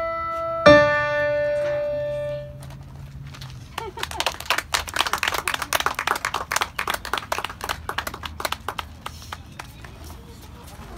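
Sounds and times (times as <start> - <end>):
small audience applauding: 3.7 - 10.3.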